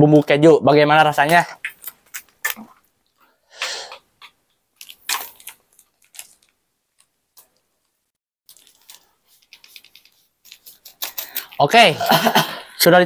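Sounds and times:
plastic sachet crinkling: 4.2s - 7.5s, 8.5s - 11.8s.

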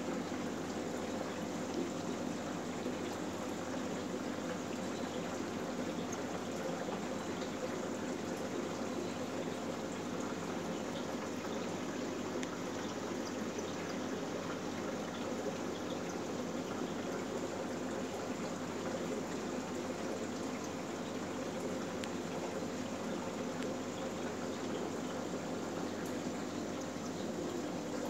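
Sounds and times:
aquarium water trickling: 0.0s - 28.0s
faint small ticks: 12.4s - 12.6s, 22.0s - 22.2s, 23.5s - 23.8s.

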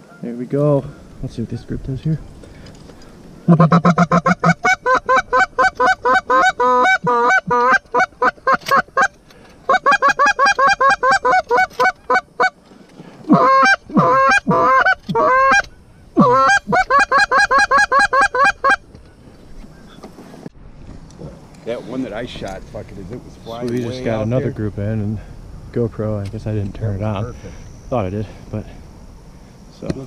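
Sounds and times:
goose call clucks and honks: 3.4s - 12.6s, 13.3s - 19.2s.

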